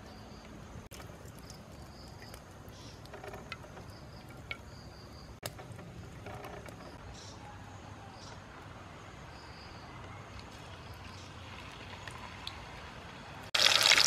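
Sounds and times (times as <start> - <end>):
insects chirping in trills: 0.0 - 7.3.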